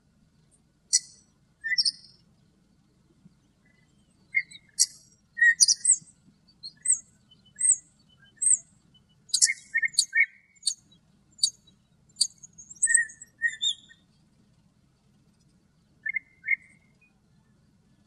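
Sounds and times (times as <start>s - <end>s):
starling singing: 0.9s - 2.0s, 4.4s - 6.0s, 6.6s - 8.6s, 9.3s - 11.6s, 12.2s - 13.9s.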